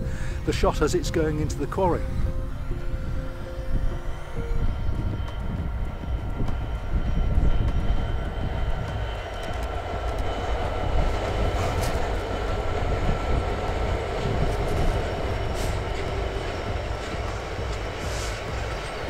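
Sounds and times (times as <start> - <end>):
diesel locomotive rumble: 0.0 - 19.0
wheels clicking on track: 3.8 - 19.0.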